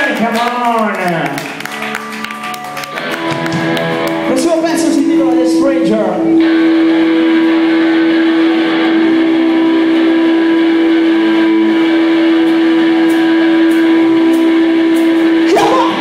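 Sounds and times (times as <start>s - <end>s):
electric guitar feedback: 1.4s - 16.0s.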